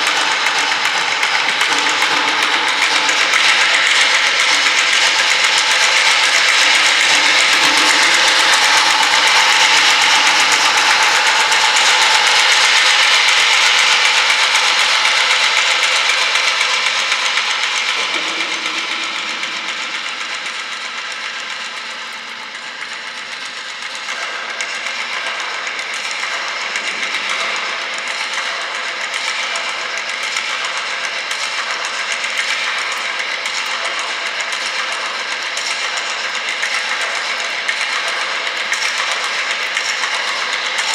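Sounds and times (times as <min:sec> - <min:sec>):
dense noise texture: 0:00.0 - 0:23.0.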